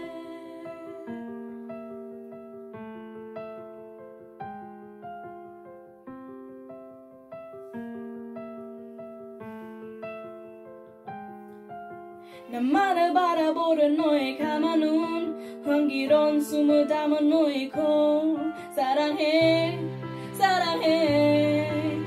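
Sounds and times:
woman singing: 0:00.0 - 0:01.5, 0:12.4 - 0:22.0
soft piano chords: 0:00.0 - 0:22.0.

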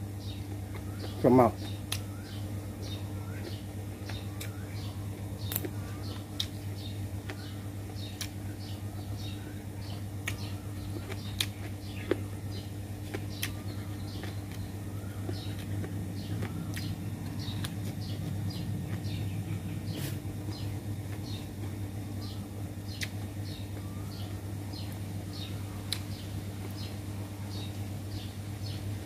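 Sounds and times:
small birds chirping: 0:00.0 - 0:29.0
steady low hum: 0:00.0 - 0:29.0
person chewing: 0:05.5 - 0:07.5, 0:08.1 - 0:08.4, 0:09.9 - 0:12.4, 0:13.0 - 0:19.2
mouth clicks: 0:22.9 - 0:23.2.

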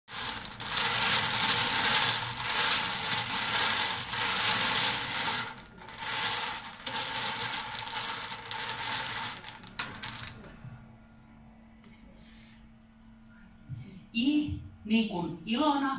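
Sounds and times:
wooden balls clattering in wire cage: 0:00.1 - 0:10.4.

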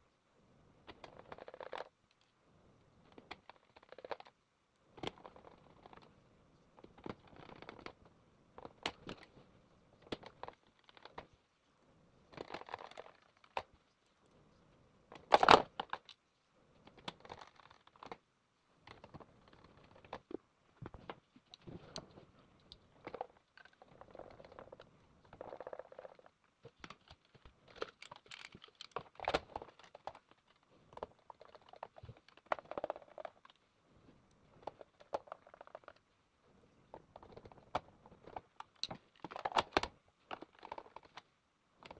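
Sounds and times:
plastic parts clicking and rattling: 0:08.6 - 0:09.4, 0:10.0 - 0:11.4, 0:12.3 - 0:13.7, 0:15.1 - 0:16.2, 0:16.9 - 0:18.2, 0:18.9 - 0:33.6, 0:36.9 - 0:41.9.

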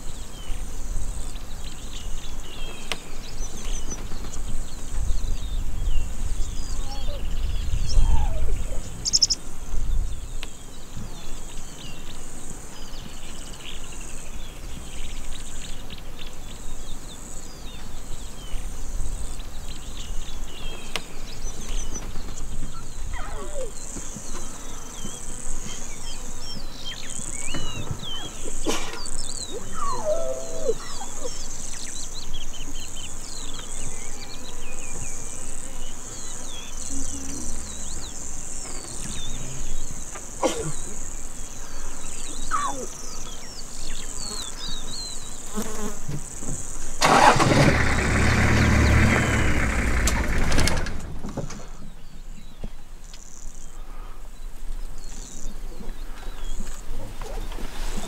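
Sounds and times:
longer bird calls: 0:00.0 - 0:45.8
insects buzzing high-pitched: 0:00.0 - 0:50.6
birds chirping and twittering: 0:00.0 - 0:58.0.

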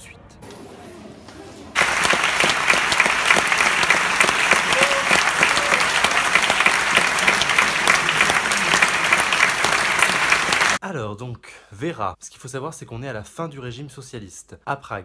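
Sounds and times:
audience clapping: 0:01.8 - 0:10.8.

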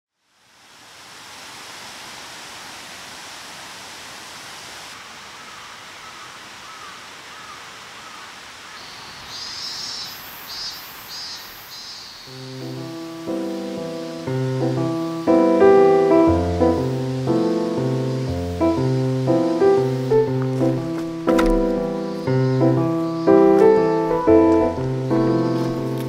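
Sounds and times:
steady rushing hiss: 0:00.2 - 0:26.0
faint wavering bird calls: 0:05.1 - 0:26.0.

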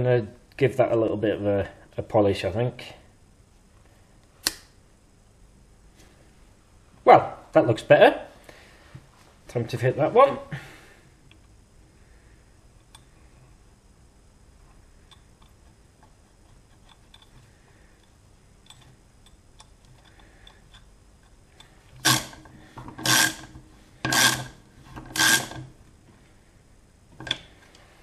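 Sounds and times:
small clicks of parts handled: 0:16.8 - 0:21.7, 0:27.2 - 0:27.8
socket ratchet strokes: 0:22.0 - 0:25.7.

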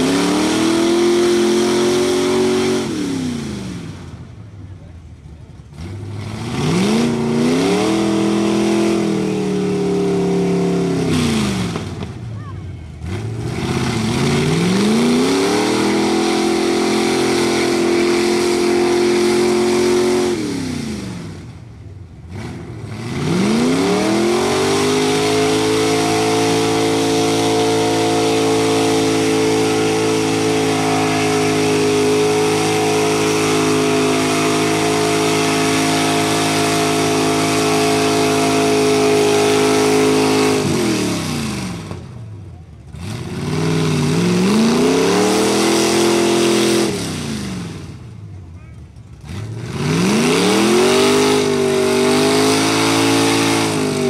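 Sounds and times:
truck engine revving: 0:00.0 - 0:54.0
tyres spinning through mud: 0:22.3 - 0:42.1.

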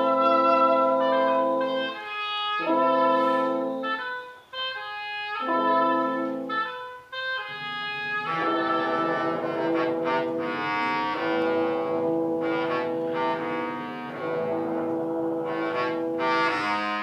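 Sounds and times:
orchestra with bowed strings: 0:07.4 - 0:17.0.

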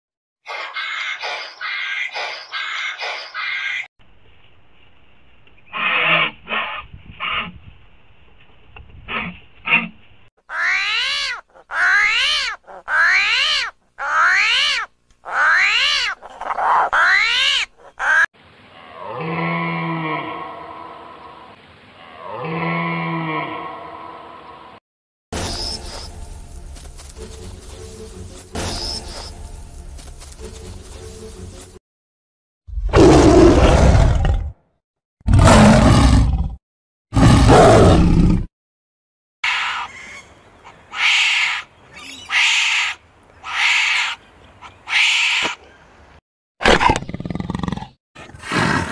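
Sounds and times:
big cat roaring: 0:32.8 - 0:34.6, 0:35.3 - 0:38.5.

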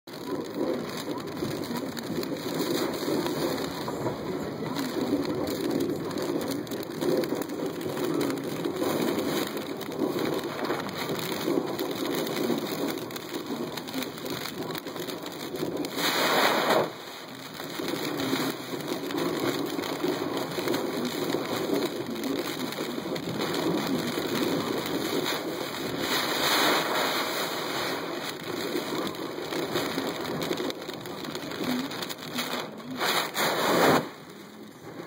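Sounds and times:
wind buffeting car: 0:00.1 - 0:16.0, 0:17.3 - 0:32.3
rain hitting car windows: 0:00.1 - 0:35.0.

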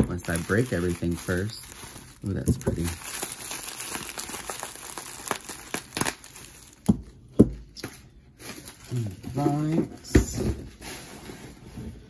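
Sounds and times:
bubble wrap crinkling: 0:00.0 - 0:07.0, 0:08.3 - 0:09.7.

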